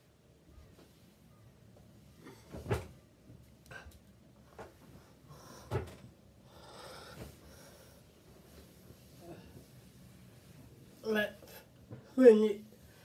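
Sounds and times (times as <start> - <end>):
soft rustling: 7.1 - 13.0.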